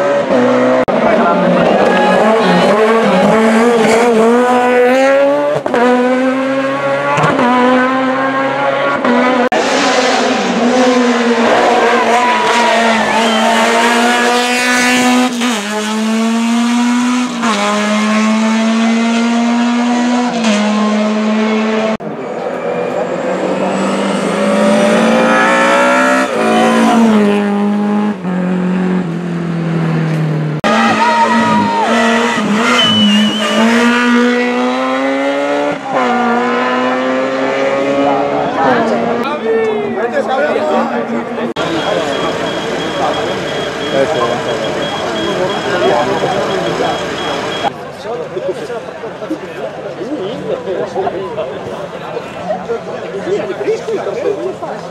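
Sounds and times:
cars passing: 0:00.0 - 0:54.9
race car engines revving: 0:00.0 - 0:54.9.

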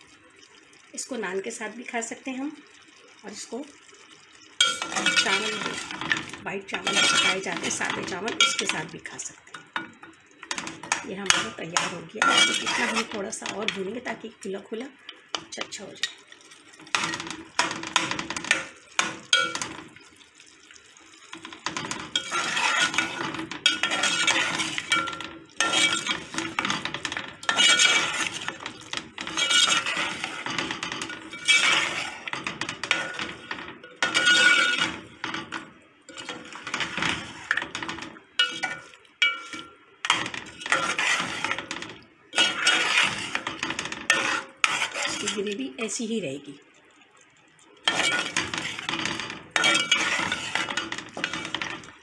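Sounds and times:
meat frying: 0:00.0 - 0:52.0
metal spoon scraping a metal pot: 0:04.6 - 0:14.1, 0:16.8 - 0:20.0, 0:21.3 - 0:45.7, 0:47.8 - 0:52.0.

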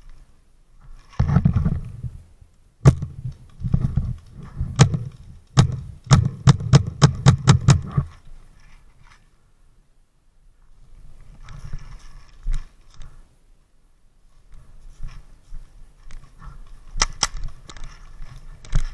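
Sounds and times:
air gun shots popping: 0:04.8 - 0:08.0.

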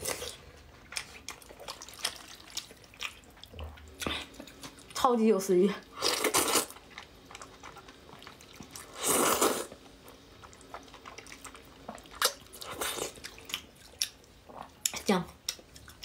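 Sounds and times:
chewing: 0:00.0 - 0:05.0, 0:06.1 - 0:16.0
person slurping noodles: 0:08.9 - 0:09.7.

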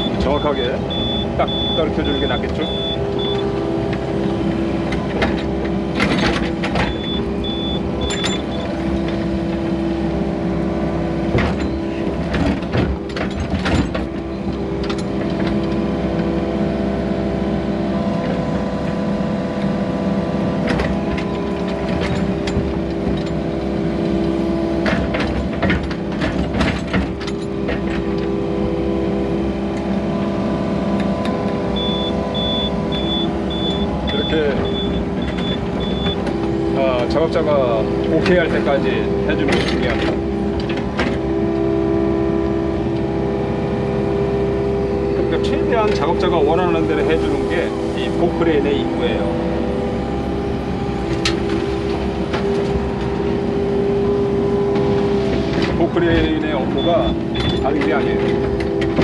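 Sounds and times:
backup alarm beeping: 0:00.0 - 0:03.5, 0:06.9 - 0:08.6, 0:31.7 - 0:36.3, 0:56.8 - 0:57.7
machine knocks and clatter: 0:00.0 - 0:10.0, 0:11.1 - 0:16.6, 0:20.5 - 0:42.0, 0:50.1 - 0:59.0
excavator diesel engine running: 0:00.0 - 0:59.0.

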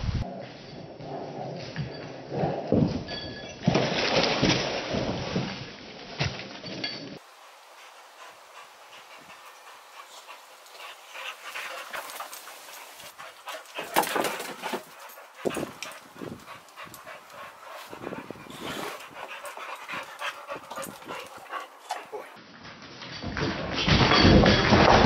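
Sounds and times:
dogs panting: 0:07.2 - 0:22.4.

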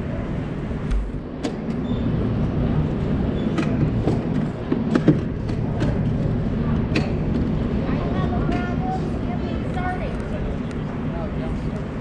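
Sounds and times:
go-kart motors humming: 0:00.0 - 0:12.0
sharp clicks and knocks: 0:03.5 - 0:06.2.

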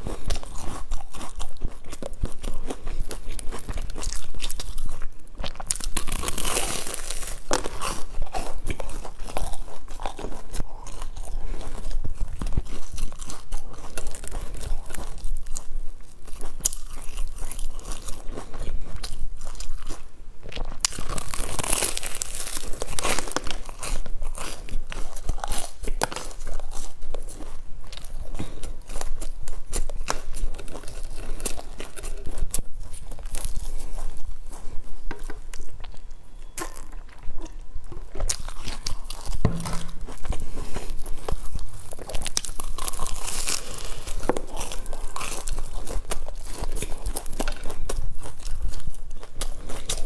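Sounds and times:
chewing a crunchy bun: 0:00.0 - 0:50.0.

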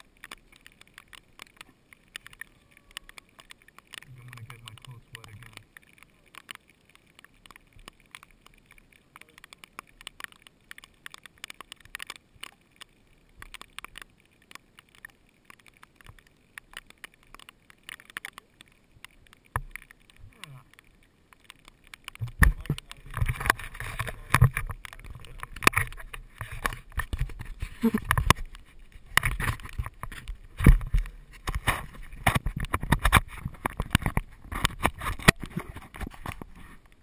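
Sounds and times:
faint scattered clicks and crackles: 0:00.0 - 0:37.0
fingers rubbing and thumping camera: 0:22.0 - 0:37.0.

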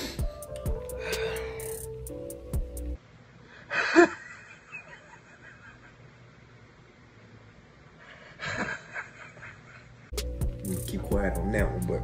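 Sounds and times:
person laughing loudly: 0:03.7 - 0:06.1, 0:08.2 - 0:10.0.

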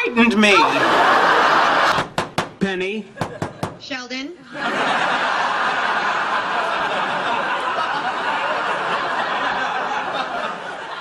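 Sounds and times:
studio audience laughing: 0:00.4 - 0:02.2, 0:04.4 - 0:11.0.

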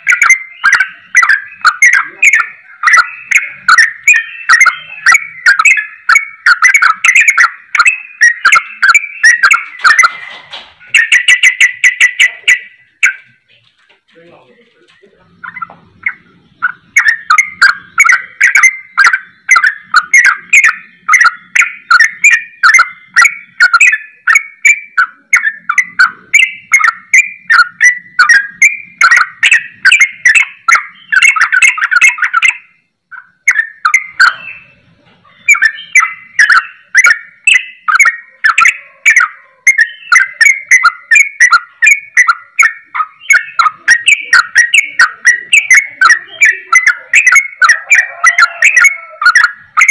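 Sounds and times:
bulbul singing rapid chirps: 0:00.0 - 0:13.6, 0:14.2 - 0:49.9.

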